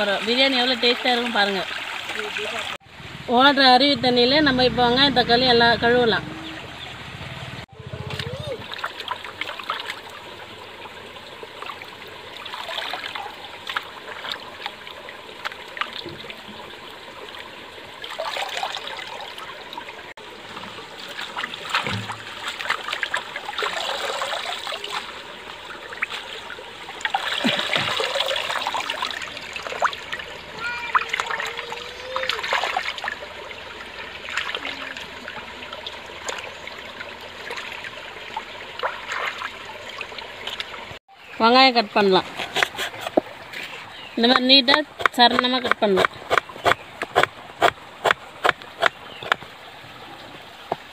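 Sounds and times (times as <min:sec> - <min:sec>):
stream trickling: 0:00.0 - 0:50.9.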